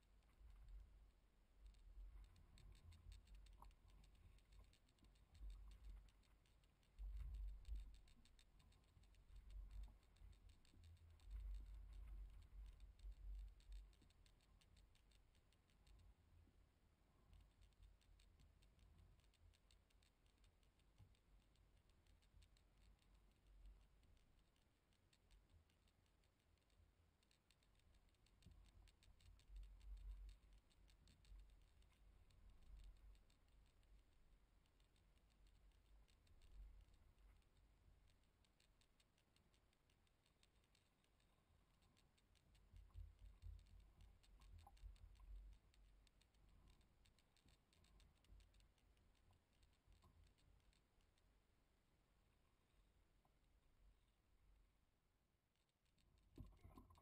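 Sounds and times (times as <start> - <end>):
faint low rumbles: 0.0 - 19.8
light ticking: 0.0 - 54.5.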